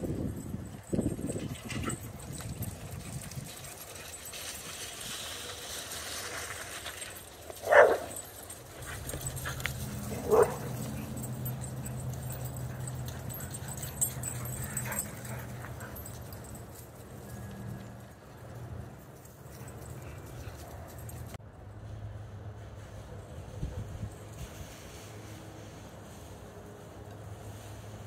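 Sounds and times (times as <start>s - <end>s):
dog barking: 7.6s - 8.2s, 10.2s - 10.8s.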